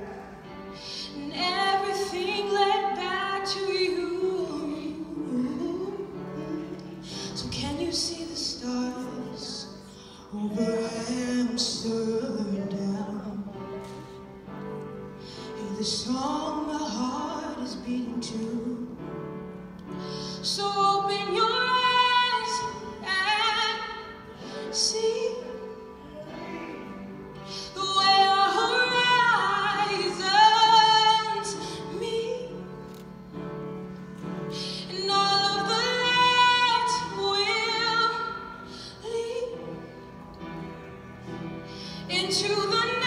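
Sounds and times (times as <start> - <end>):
piano accompaniment: 0.0 - 43.0
woman singing a ballad: 0.8 - 13.5, 15.6 - 19.0, 20.4 - 26.8, 27.5 - 33.0, 34.5 - 39.8, 42.0 - 43.0.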